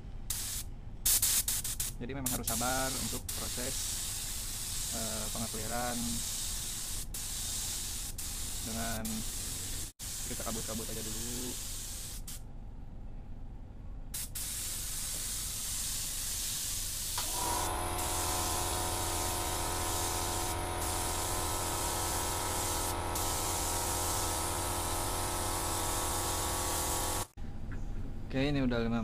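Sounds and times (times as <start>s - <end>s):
spray gun hissing: 0.3s - 12.4s, 14.2s - 27.4s
air compressor humming: 16.9s - 27.4s.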